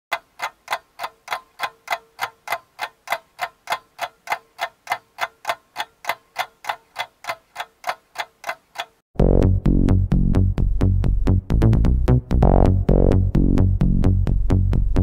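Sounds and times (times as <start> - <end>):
steady even ticking: 0.1 - 9.6.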